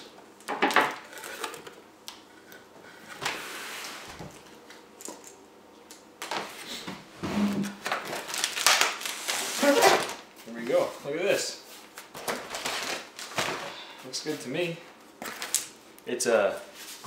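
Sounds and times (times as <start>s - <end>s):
plastic packing wrap crinkling: 7.8s - 10.9s, 15.2s - 15.8s.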